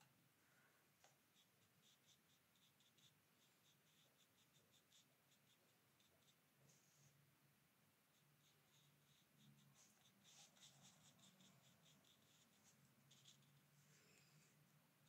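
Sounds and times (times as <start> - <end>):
brush scratching on paper: 1.3 - 7.2, 8.1 - 14.6.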